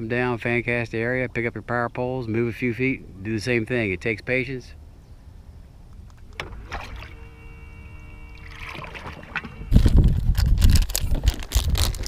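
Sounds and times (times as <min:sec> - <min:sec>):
steady tonal hum: 0:05.3 - 0:10.3
storage compartment clunks and rattles: 0:08.8 - 0:12.0.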